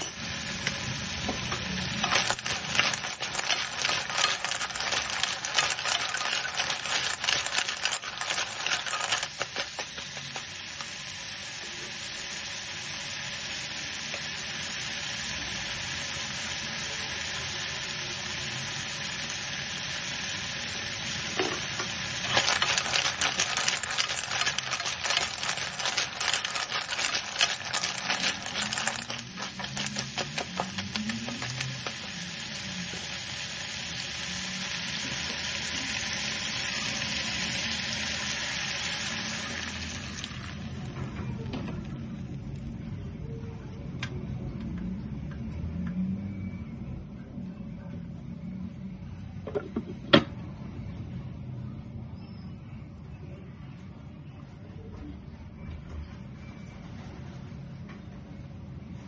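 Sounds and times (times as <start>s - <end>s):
shells clattering in a pan: 0.0s - 11.0s, 21.4s - 32.3s
snails sizzling in oil: 0.0s - 40.9s
water poured into hot pan: 1.8s - 40.8s.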